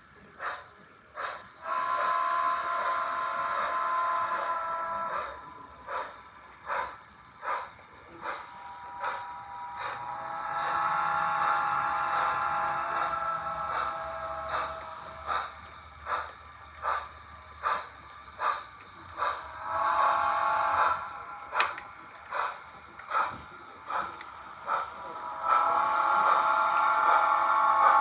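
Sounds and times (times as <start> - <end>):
steam locomotive chuffs: 0.0 - 28.0
train whistle blast: 1.6 - 5.6, 8.5 - 15.0, 19.5 - 21.4, 25.2 - 28.0.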